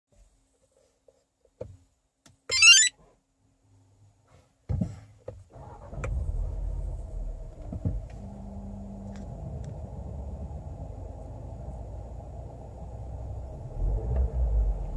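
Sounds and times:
high-pitched electronic chime: 0:02.5 - 0:02.9
car engine starting and idling: 0:05.5 - 0:14.9.

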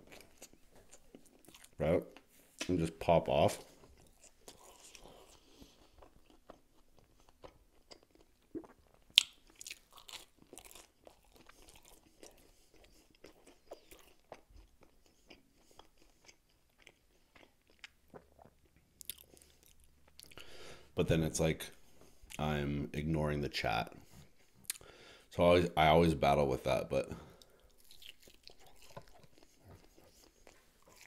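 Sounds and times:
person chewing crunchy food: 0:00.0 - 0:02.3, 0:03.8 - 0:20.6, 0:24.3 - 0:25.0, 0:27.4 - 0:31.0.

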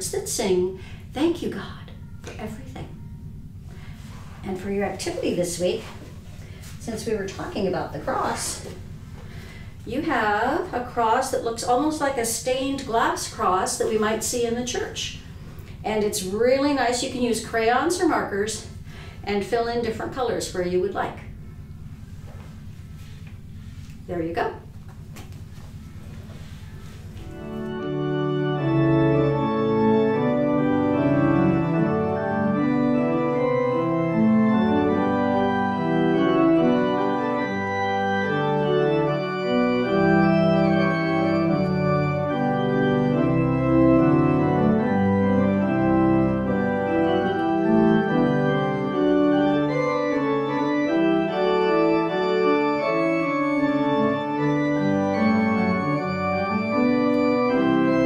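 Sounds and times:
organ playing slow chords: 0:25.9 - 0:58.0.

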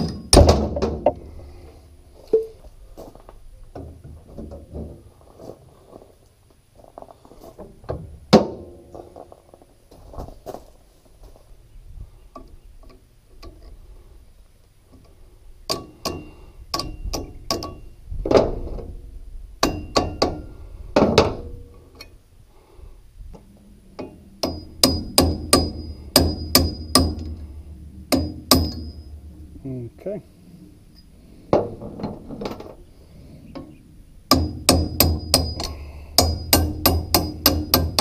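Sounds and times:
hammer striking metal punch: 0:24.4 - 0:27.3, 0:28.1 - 0:29.0, 0:34.3 - 0:38.0.

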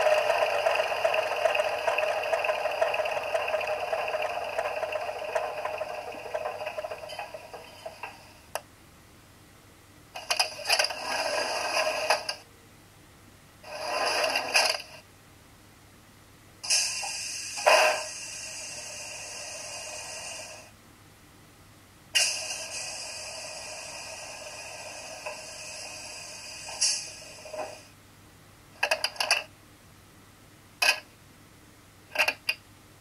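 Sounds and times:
humming machine sound: 0:00.0 - 0:08.6
short noisy bursts: 0:16.6 - 0:20.7.

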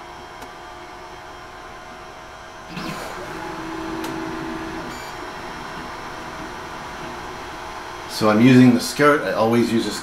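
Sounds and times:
printer fan hum: 0:00.0 - 0:10.0
stepper motors whining: 0:02.7 - 0:07.2.

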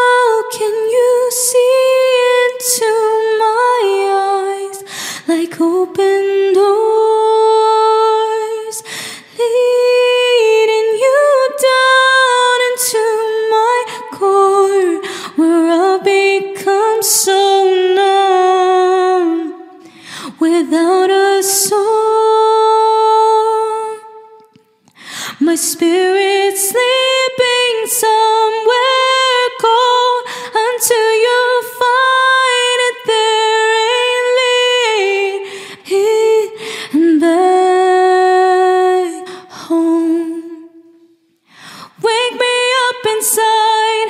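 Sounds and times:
singer breathing: 0:04.8 - 0:05.3, 0:08.8 - 0:09.4, 0:15.0 - 0:15.4, 0:19.7 - 0:20.4, 0:24.8 - 0:25.4, 0:30.2 - 0:30.6, 0:35.4 - 0:35.9, 0:36.5 - 0:37.0, 0:41.4 - 0:42.0.

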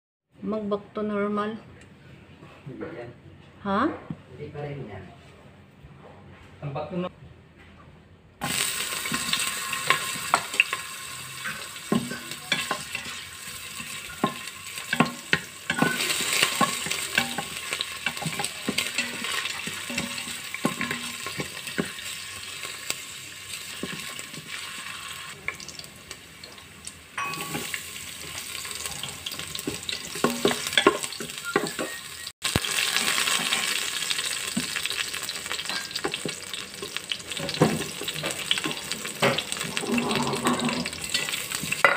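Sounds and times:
ginger and onion sizzling in oil: 0:08.4 - 0:41.9
wooden spatula scraping a pot: 0:11.4 - 0:22.8, 0:36.9 - 0:41.8.

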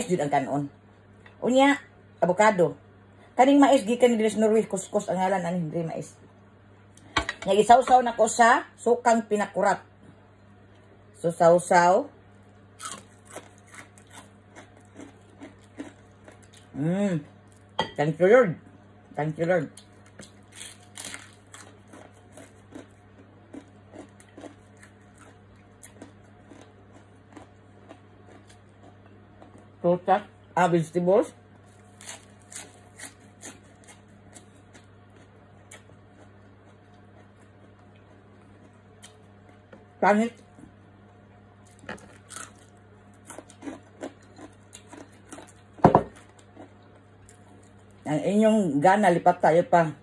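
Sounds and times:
steady low hum: 0:00.0 - 0:50.0
person chewing: 0:12.8 - 0:17.7, 0:19.8 - 0:29.8, 0:31.7 - 0:39.9, 0:41.6 - 0:48.0.

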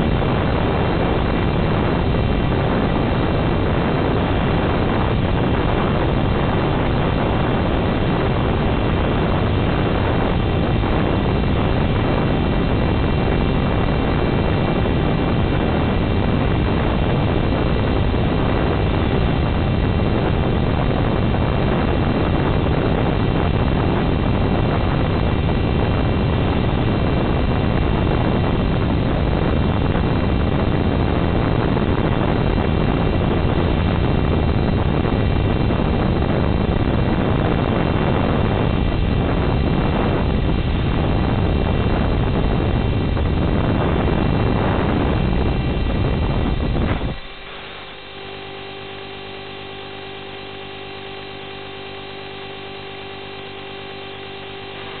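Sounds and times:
electrical hum with buzzing: 0:00.0 - 0:55.0
steady rushing noise: 0:00.0 - 0:55.0.

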